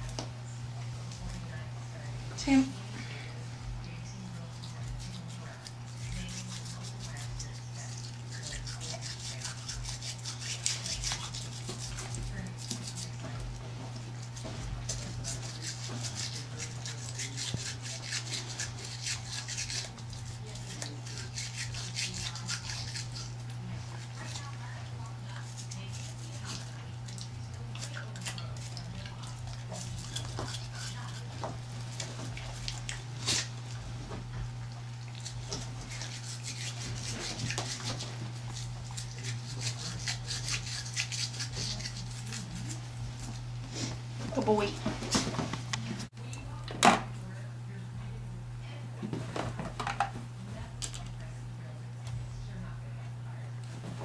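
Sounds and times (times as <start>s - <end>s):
toothbrush scrubbing teeth: 3.6s - 44.6s.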